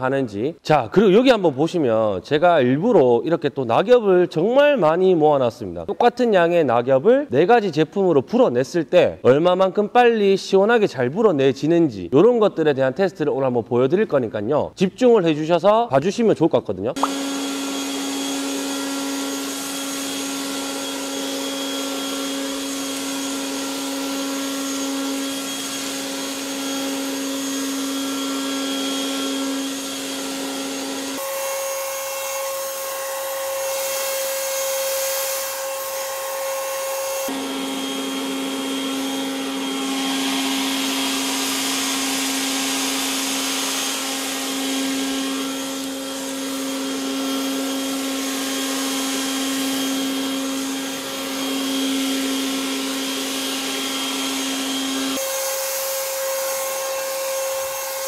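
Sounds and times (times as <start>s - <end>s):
leaf blower whining: 17.0s - 58.0s.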